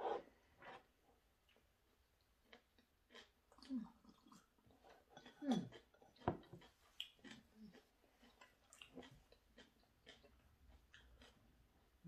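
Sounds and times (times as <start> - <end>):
chewing and swallowing: 2.4 - 12.0.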